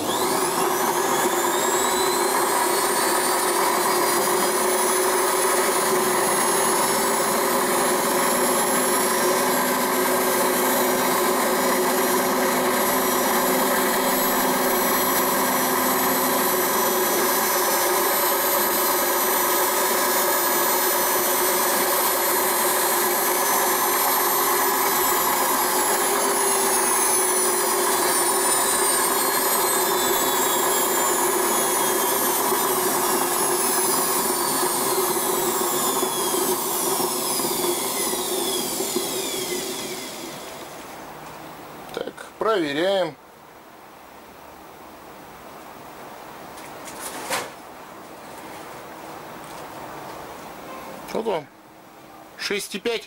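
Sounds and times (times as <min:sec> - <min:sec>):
lathe motor whining: 0:00.0 - 0:41.1.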